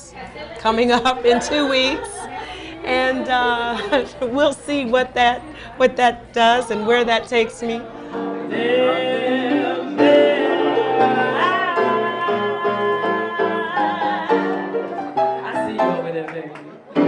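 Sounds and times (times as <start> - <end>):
piano accompaniment: 7.9 - 17.0
woman singing into a microphone: 11.0 - 14.9.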